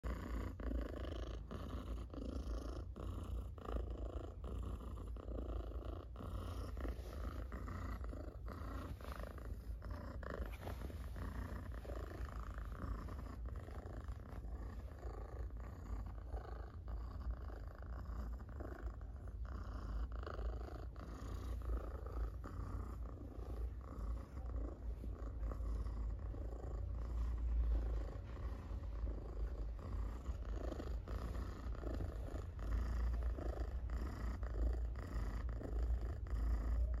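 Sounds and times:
cat purring loudly: 0.0 - 37.0.

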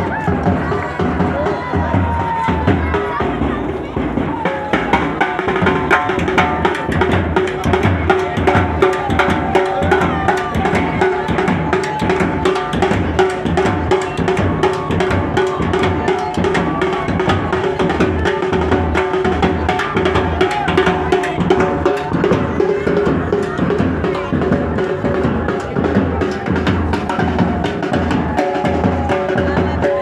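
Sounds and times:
bass and snare drums beating: 0.0 - 30.0.

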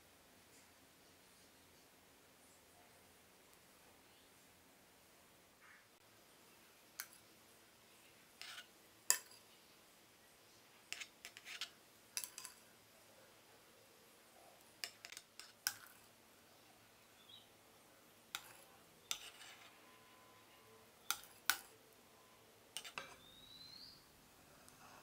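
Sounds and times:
spatula clicks and scrapes: 7.0 - 7.2, 8.4 - 9.4, 10.9 - 12.6, 14.6 - 16.1, 18.3 - 19.8, 21.0 - 21.8, 22.7 - 23.3.

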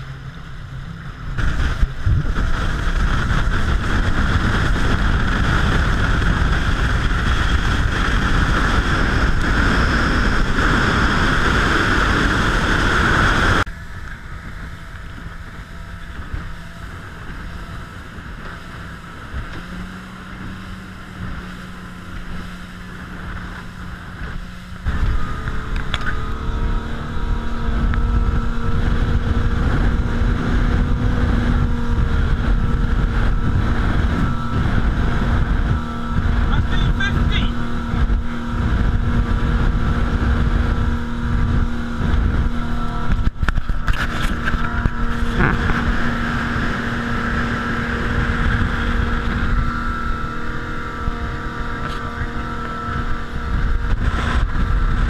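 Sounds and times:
motorboat engine humming: 0.0 - 55.0
water rushing past boat hull: 0.0 - 55.0
wind noise: 0.0 - 55.0.

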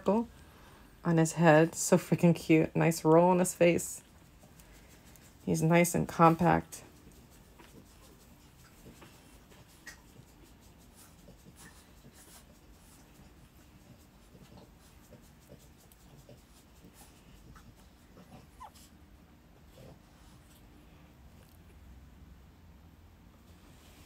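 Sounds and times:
low steady background noise: 0.0 - 24.0.

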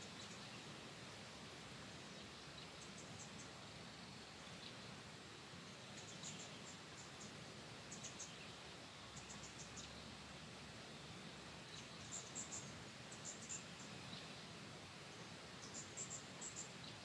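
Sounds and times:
insect chirping: 0.0 - 4.7, 10.9 - 14.5, 15.2 - 17.0
faint steady hiss: 0.0 - 17.0.

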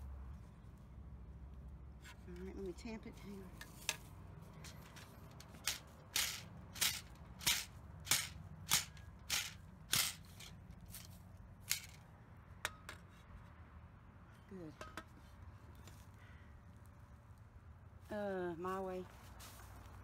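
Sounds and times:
soil being tamped: 4.6 - 12.0.

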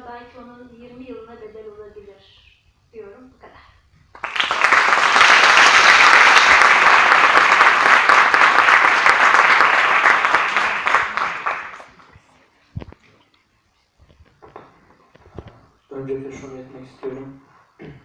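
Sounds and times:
audience applauding: 4.2 - 12.2.

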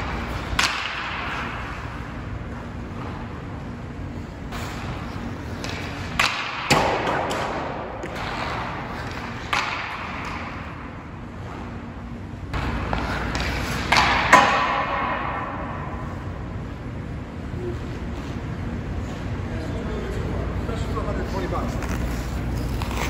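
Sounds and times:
puck striking boards: 0.0 - 1.6, 5.5 - 10.8, 12.5 - 16.0
hockey stick cracking on puck: 0.1 - 1.6, 5.5 - 10.6, 12.6 - 15.4
skate blades scraping ice: 12.6 - 14.4, 21.2 - 23.0.

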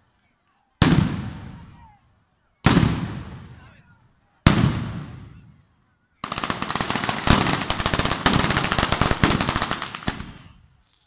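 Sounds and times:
firecrackers exploding: 2.6 - 3.6, 4.5 - 5.4, 6.2 - 11.0
heavier firework reports: 6.2 - 10.7.

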